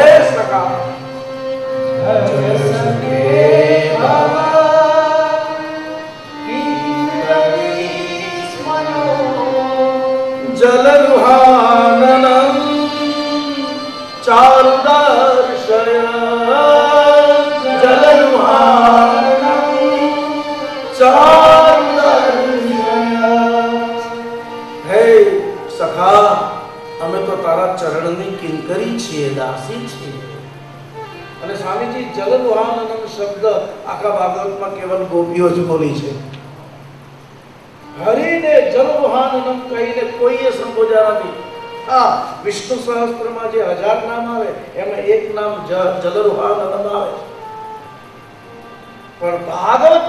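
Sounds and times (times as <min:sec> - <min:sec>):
instrumental accompaniment: 0:00.0 - 0:50.0
man singing devotional song: 0:02.0 - 0:30.2.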